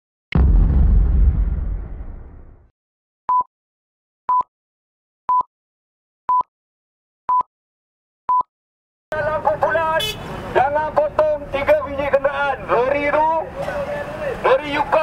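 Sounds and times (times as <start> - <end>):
short electronic beeps: 8.3 - 8.5.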